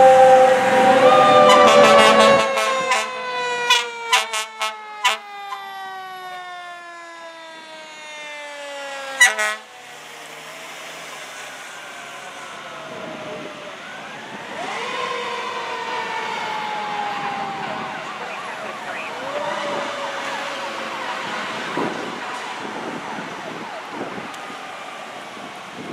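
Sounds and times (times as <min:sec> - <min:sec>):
short loud horn blast: 0:00.0 - 0:05.2, 0:09.2 - 0:09.6
rapid siren yelp: 0:00.0 - 0:25.9
sirens wailing: 0:00.0 - 0:25.9.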